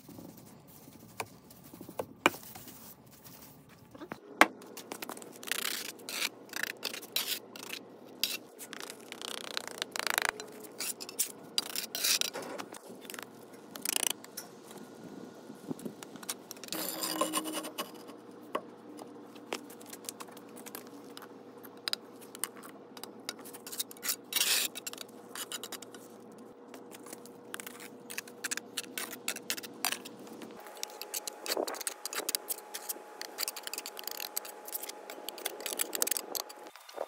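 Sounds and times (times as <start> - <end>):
trowel scraping mortar: 16.7 - 18.1.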